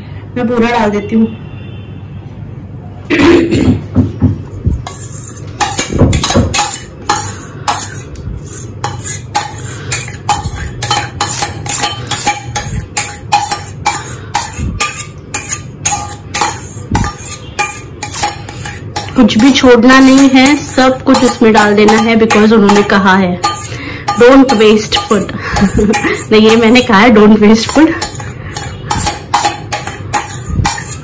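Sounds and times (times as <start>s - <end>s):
spoon scraping metal bowl: 4.8s - 31.0s.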